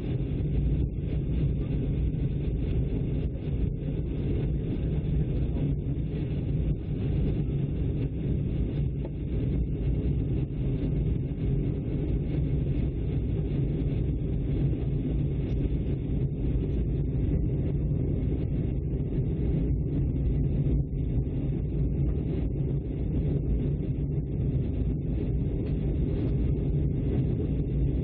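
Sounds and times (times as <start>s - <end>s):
jet airliner cabin drone: 0.0s - 28.0s.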